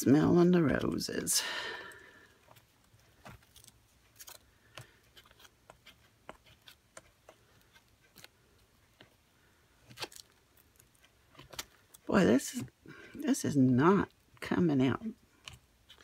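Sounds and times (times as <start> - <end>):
sponge dabbing through a stencil: 2.4 - 13.1.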